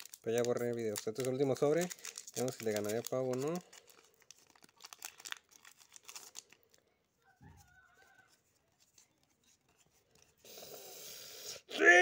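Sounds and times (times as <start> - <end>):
foil wrapper crinkling and tearing: 0.0 - 6.9.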